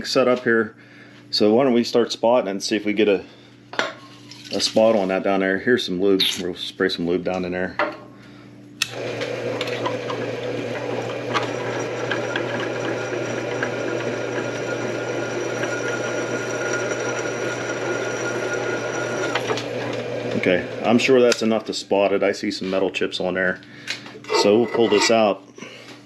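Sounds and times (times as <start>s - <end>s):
drill press cutting metal: 8.8s - 20.9s
low motor hum: 9.0s - 21.0s.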